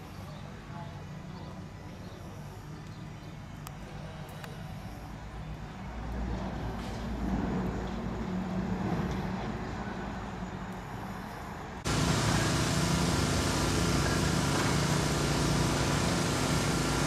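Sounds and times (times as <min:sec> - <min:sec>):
road traffic rumbling: 0:00.0 - 0:17.0
steady mechanical hum: 0:00.0 - 0:17.0.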